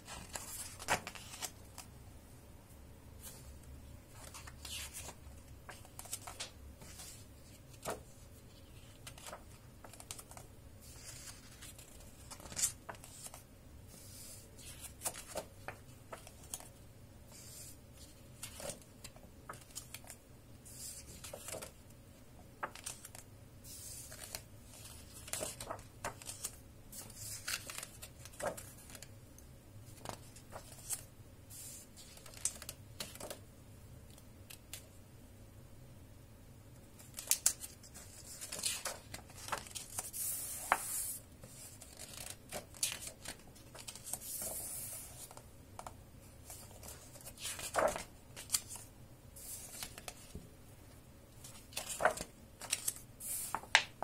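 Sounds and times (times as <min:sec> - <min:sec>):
book pages turning: 0:00.1 - 0:01.9, 0:04.1 - 0:13.4, 0:14.0 - 0:21.8, 0:22.6 - 0:29.1, 0:37.0 - 0:50.4, 0:51.4 - 0:54.0.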